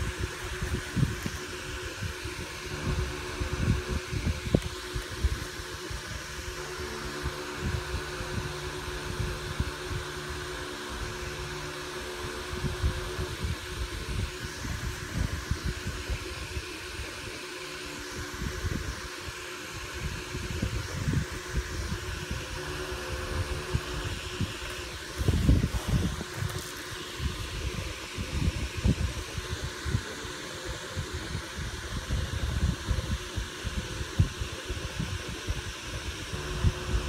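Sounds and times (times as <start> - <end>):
mechanical whirr: 0.0 - 37.0
hands handling objects: 24.7 - 27.0.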